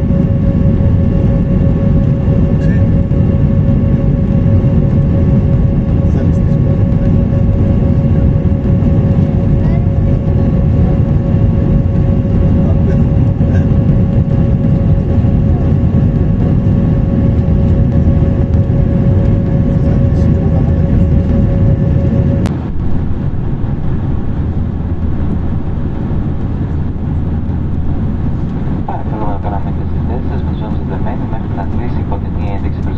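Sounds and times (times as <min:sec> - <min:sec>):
jet cabin engine rumble: 0:00.0 - 0:32.9.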